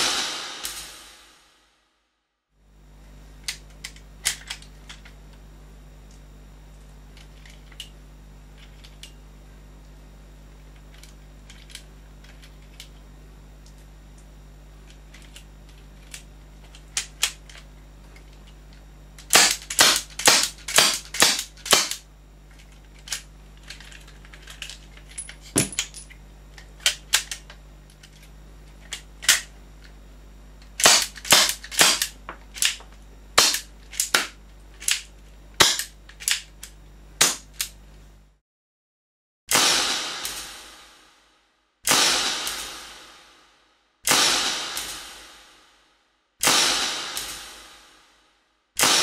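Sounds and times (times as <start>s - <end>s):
loud crack with ringing tail: 0.0s - 1.6s, 39.5s - 41.2s, 41.9s - 45.8s, 46.4s - 48.2s, 48.8s - 49.0s.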